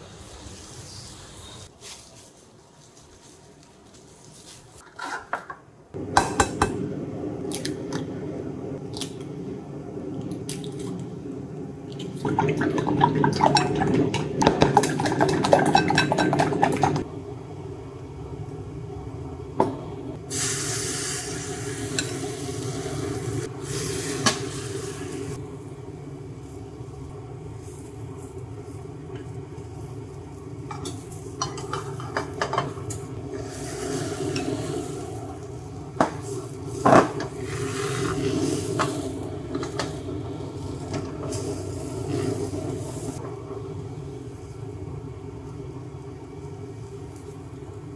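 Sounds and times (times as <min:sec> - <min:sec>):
steady low hum: 0:05.9 - 0:47.9
egg hissing in hot pan: 0:20.3 - 0:25.4, 0:33.3 - 0:43.2.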